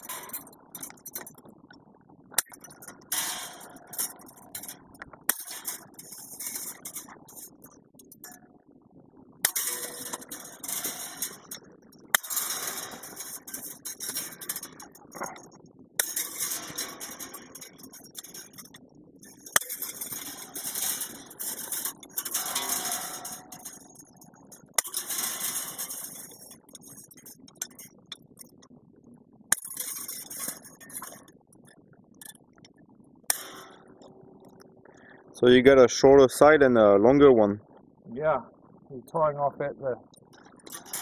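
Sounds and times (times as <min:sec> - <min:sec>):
fence wire and tools clinking: 0:00.0 - 0:01.4, 0:02.4 - 0:08.5, 0:09.4 - 0:28.7, 0:29.5 - 0:32.4, 0:33.3 - 0:34.6, 0:40.3 - 0:41.0.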